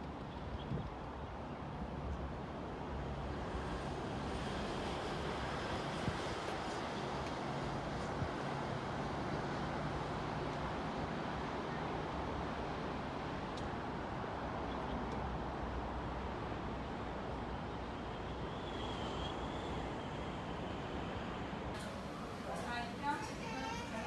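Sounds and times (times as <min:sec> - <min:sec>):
faint high whistle: 0:18.4 - 0:20.6.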